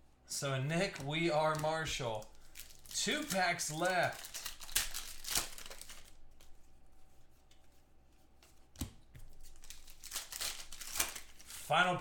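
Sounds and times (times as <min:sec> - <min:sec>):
rustling of cards and foil wrapper: 0:00.7 - 0:06.6, 0:09.4 - 0:12.0.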